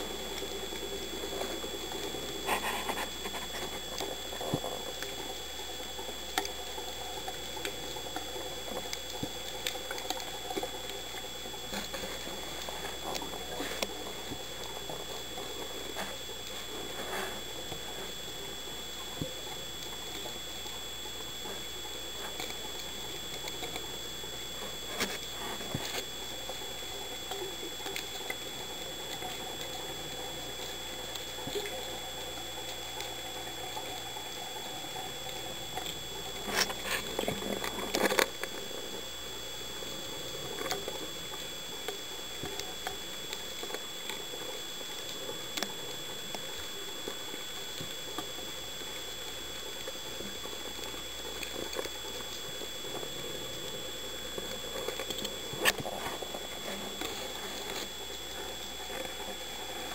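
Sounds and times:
crackling clicks: 0:00.0 - 0:59.9
faint high whine: 0:00.0 - 0:59.9.

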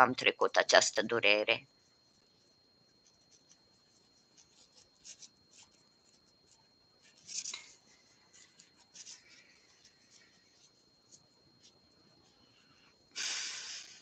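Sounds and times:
faint high whine: 0:00.0 - 0:14.0
crochet hook rustling yarn: 0:03.0 - 0:12.8.

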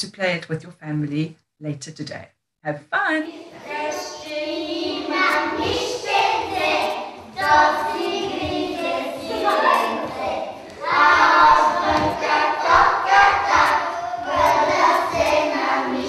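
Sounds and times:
children singing together: 0:03.3 - 0:16.0.

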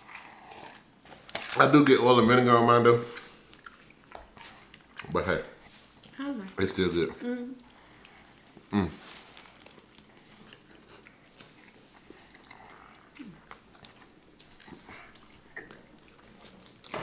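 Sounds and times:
chewing with wet mouth smacks: 0:03.1 - 0:05.2, 0:09.4 - 0:17.0.

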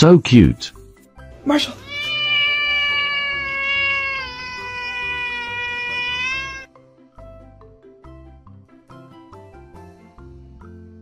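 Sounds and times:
cat meowing: 0:01.6 - 0:06.7.

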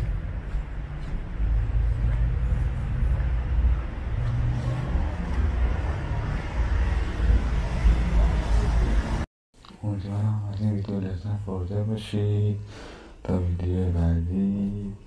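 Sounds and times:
road traffic rumble: 0:00.0 - 0:09.3.

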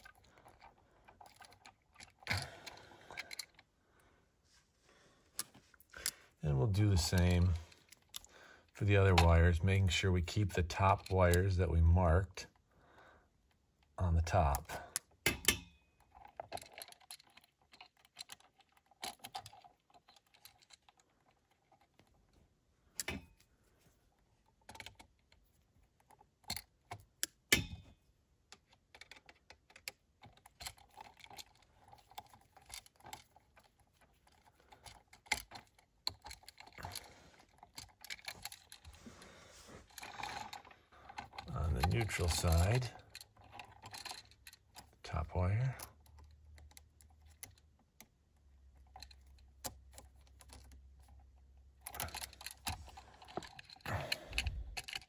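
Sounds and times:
hand tools clicking on wire: 0:39.8 - 0:55.0.

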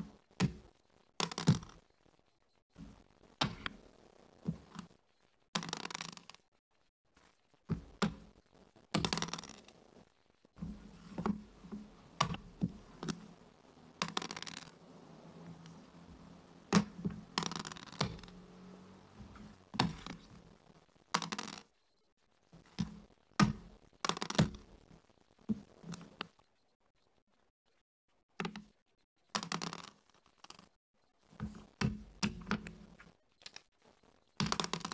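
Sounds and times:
checkers clacking on wooden board: 0:01.2 - 0:01.8, 0:05.6 - 0:06.4, 0:09.0 - 0:09.8, 0:10.9 - 0:20.4, 0:21.2 - 0:21.7, 0:22.8 - 0:24.6, 0:29.4 - 0:30.7, 0:34.4 - 0:34.9
dice thrown onto board: 0:14.0 - 0:14.8.

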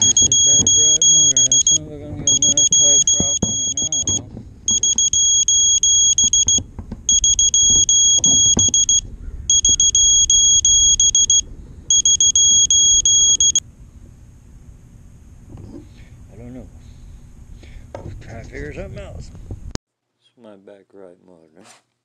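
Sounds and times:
high-pitched electronic buzzer beeping: 0:00.0 - 0:13.6
low rumble: 0:00.0 - 0:17.6.

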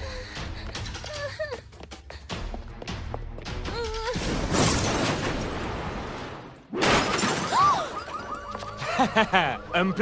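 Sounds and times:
glass shattering: 0:06.8 - 0:07.8
cartoon car crash: 0:06.8 - 0:08.0.

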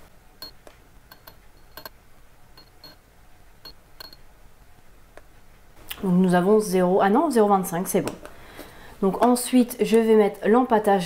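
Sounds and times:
metal spatula tapping glass beaker: 0:02.6 - 0:03.0, 0:03.6 - 0:04.2.

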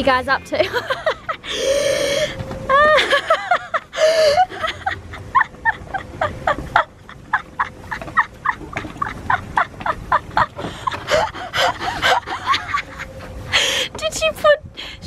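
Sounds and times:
woman laughing hard: 0:00.6 - 0:13.9.

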